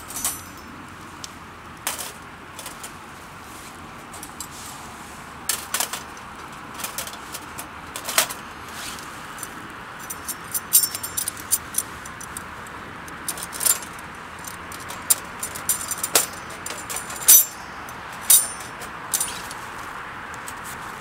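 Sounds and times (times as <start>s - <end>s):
metal gear clinking and clattering: 0.0s - 0.7s, 5.5s - 8.4s, 10.0s - 12.4s, 13.2s - 19.5s.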